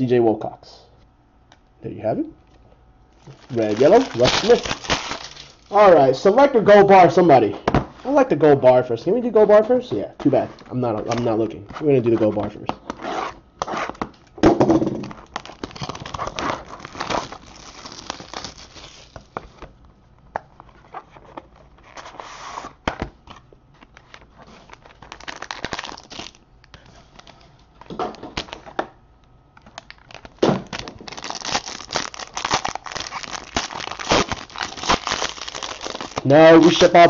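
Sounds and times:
foil pack crinkling torn open: 3.1 - 5.9, 15.0 - 19.4, 24.0 - 26.4, 29.6 - 37.0.

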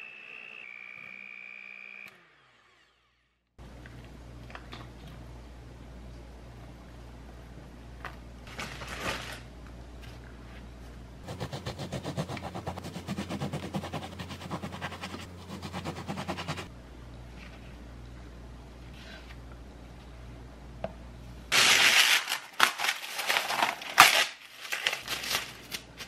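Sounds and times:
knife sawing through bread: 11.2 - 16.7.

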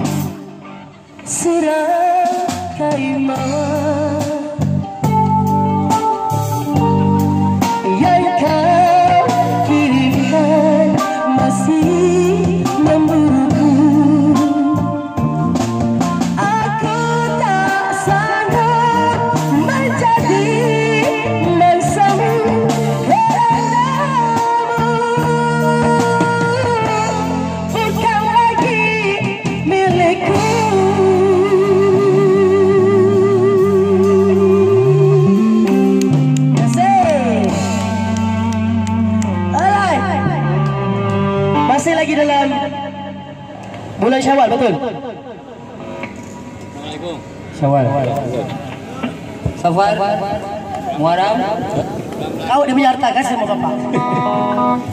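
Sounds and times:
woman singing into microphone: 0.0 - 5.3, 7.6 - 15.3, 16.2 - 42.8
electric guitar: 0.0 - 54.9.

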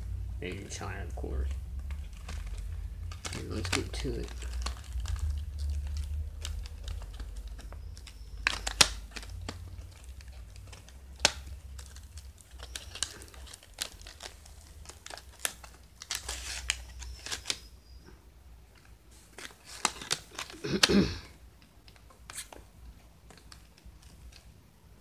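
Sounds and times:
cardboard box crinkling: 0.4 - 18.0, 19.1 - 21.2.

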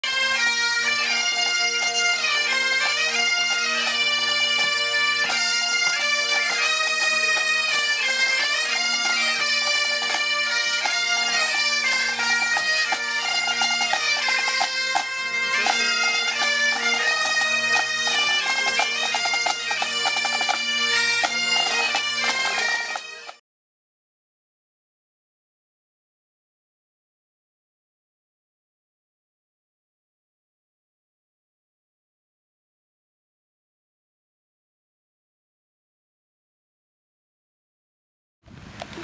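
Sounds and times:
bagpipe band playing: 0.0 - 23.4.

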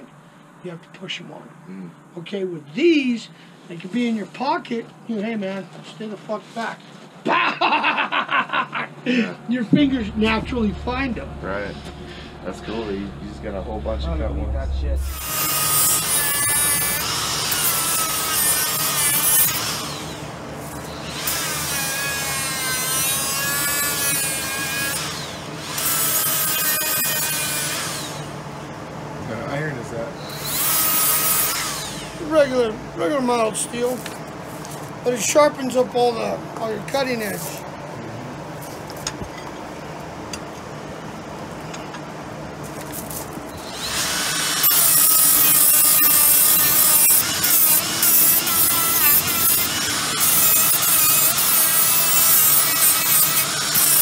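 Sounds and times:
die grinder grinding steel: 15.0 - 28.3, 30.2 - 32.6, 43.0 - 54.0.

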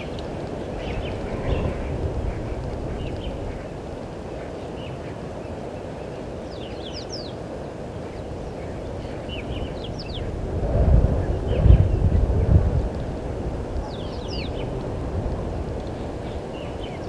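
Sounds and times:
low outdoor rumble: 0.0 - 4.8, 8.4 - 17.0
birds chirping: 0.0 - 10.3, 13.1 - 14.8, 15.9 - 17.0.

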